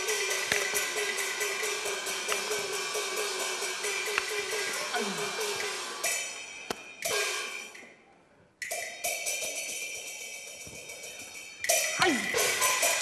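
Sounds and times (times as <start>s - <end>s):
cymbal crashes: 0.0s - 7.8s.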